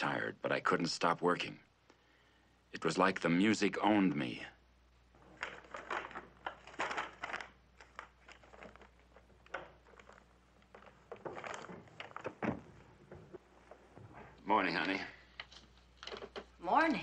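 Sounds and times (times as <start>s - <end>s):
soft knocks and rustles: 5.2s - 16.6s
footsteps: 5.2s - 17.0s
door opening: 9.2s - 15.0s.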